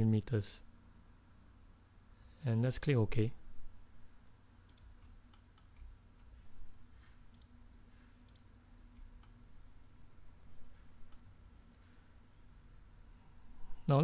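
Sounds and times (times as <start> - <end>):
low steady hum: 0.0 - 14.0
computer mouse clicks: 4.6 - 6.3, 7.3 - 7.6, 8.2 - 9.4.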